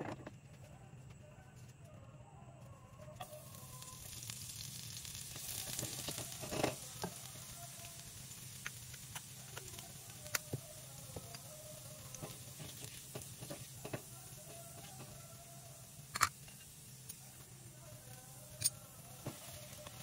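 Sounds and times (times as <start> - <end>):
garlic sizzling in hot oil: 3.2 - 20.0
spatula stirring in pan: 3.2 - 20.0.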